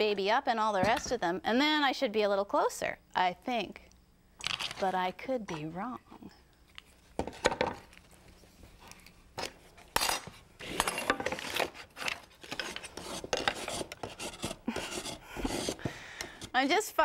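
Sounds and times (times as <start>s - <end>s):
wood rasp scraping board: 10.9s - 16.7s.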